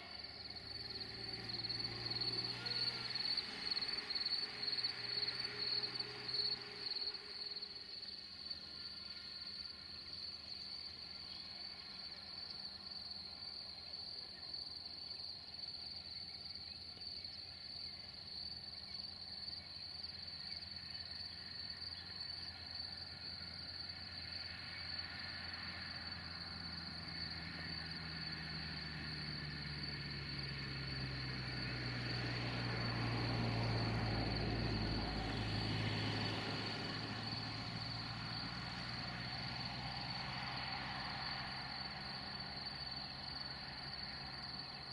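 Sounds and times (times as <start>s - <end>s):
diesel locomotive engine rumble: 0.0s - 10.1s, 24.7s - 44.9s
crickets chirping: 0.0s - 44.9s.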